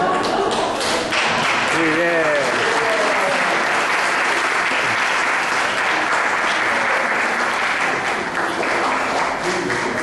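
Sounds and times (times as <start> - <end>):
people applauding: 0.0 - 10.0.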